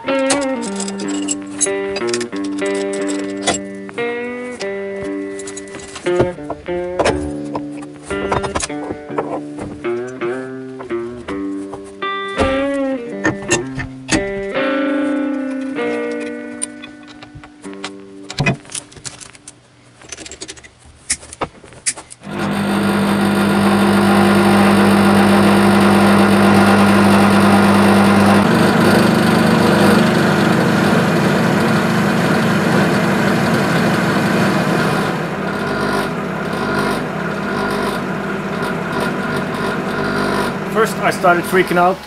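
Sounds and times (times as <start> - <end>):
spindle motor droning: 22.2 - 42.0.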